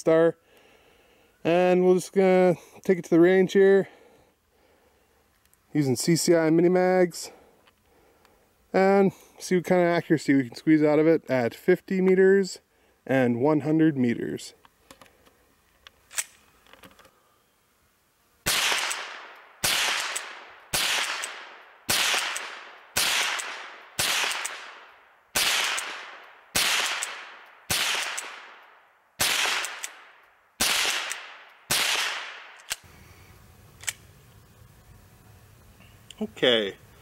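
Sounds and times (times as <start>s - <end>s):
rifle shots: 18.4s - 32.8s.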